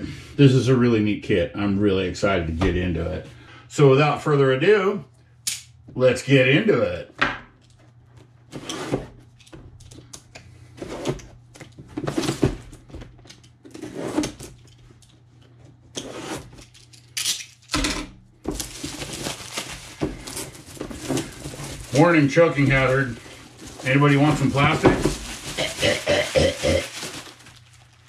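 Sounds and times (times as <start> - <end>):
shrink wrap crinkling: 18.5 - 28.0.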